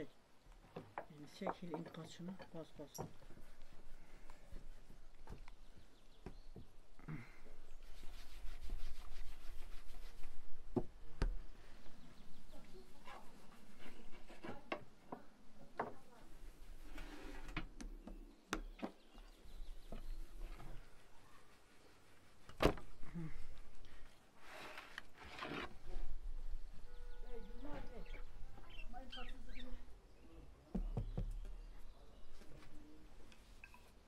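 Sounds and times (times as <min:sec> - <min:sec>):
hands rubbing dough: 0:07.7 - 0:10.6, 0:19.5 - 0:24.5.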